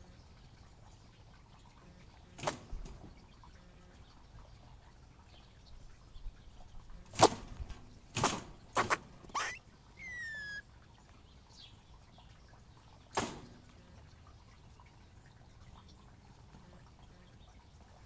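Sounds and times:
squirrel whistle: 9.4s - 10.6s.

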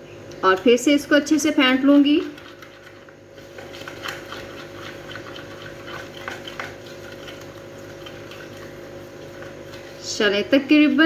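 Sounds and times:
spoon beating batter in a bowl: 1.9s - 9.9s.

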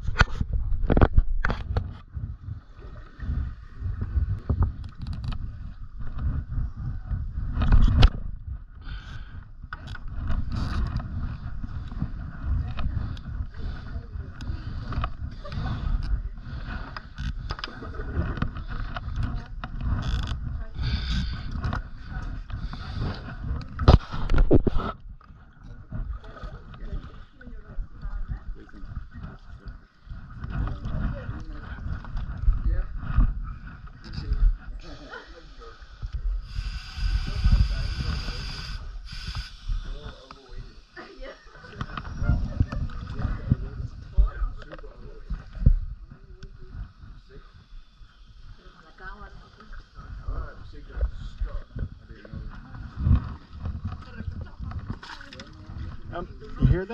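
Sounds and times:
camera handling rumble: 0.0s - 2.2s, 4.3s - 6.6s, 7.5s - 8.5s, 9.1s - 13.5s, 14.3s - 25.8s
water sloshing and splashing: 21.6s - 32.9s, 52.3s - 56.9s.

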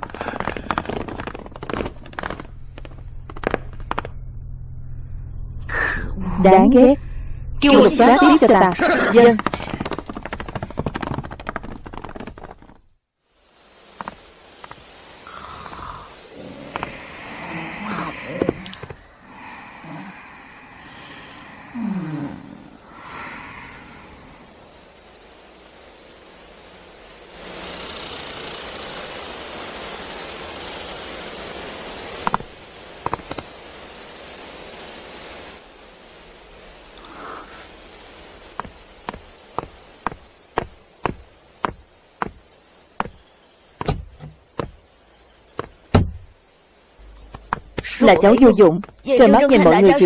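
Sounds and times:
footsteps: 0.0s - 4.2s, 8.4s - 12.9s, 38.6s - 42.4s, 43.0s - 43.2s, 43.8s - 44.8s, 47.0s - 49.2s
crickets chirping: 13.2s - 50.0s.

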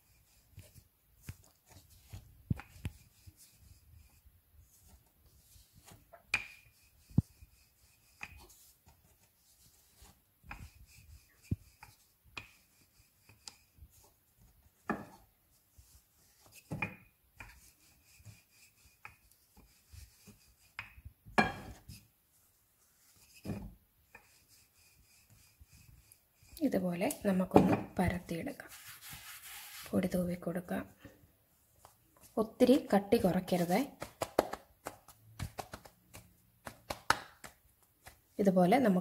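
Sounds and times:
rolling pin rubbing strokes: 0.0s - 27.4s, 28.4s - 30.2s.

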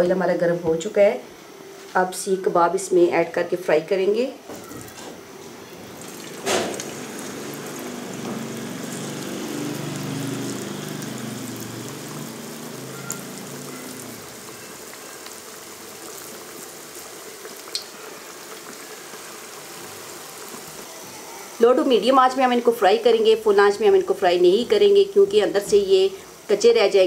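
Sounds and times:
food sizzling in oil: 4.4s - 27.0s
oil popping: 5.9s - 14.6s
sharp hiss of food into oil: 6.0s - 22.4s, 26.0s - 26.7s.

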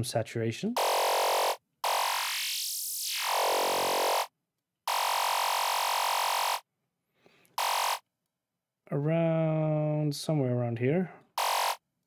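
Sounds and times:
buzzy synth lead notes: 0.8s - 4.3s, 7.6s - 8.0s.

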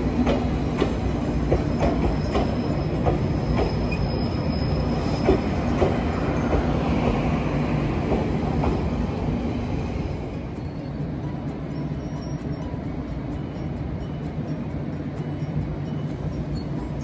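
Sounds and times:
train rumbling on rails: 0.0s - 17.0s
wheels clicking over rail joints: 0.0s - 17.0s
high wheel squeal: 1.2s - 7.1s, 10.4s - 17.0s.

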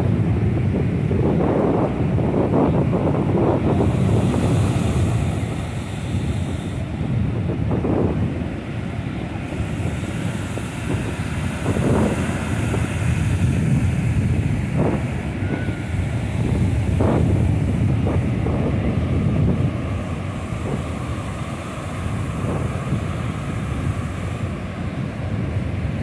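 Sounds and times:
surf breaking on a beach: 0.0s - 26.0s
wind buffeting microphone: 0.0s - 26.0s.

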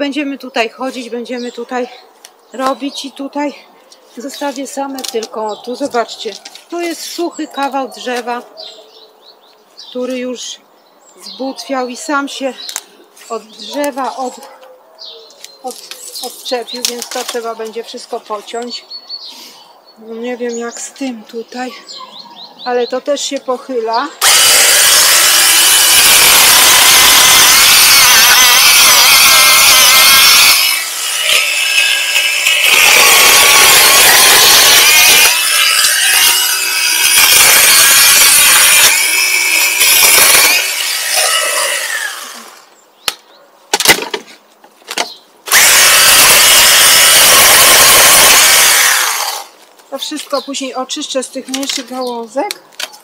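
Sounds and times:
power saw cutting branches: 24.2s - 42.7s, 45.5s - 50.2s.

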